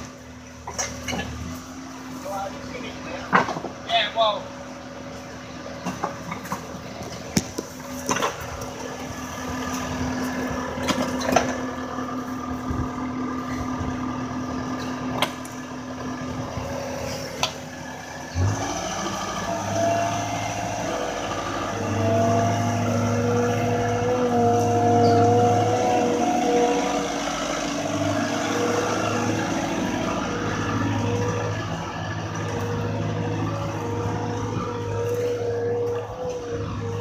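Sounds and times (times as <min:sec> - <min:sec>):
diesel engine running: 0:00.0 - 0:37.0
knocks and clanks: 0:03.2 - 0:03.8.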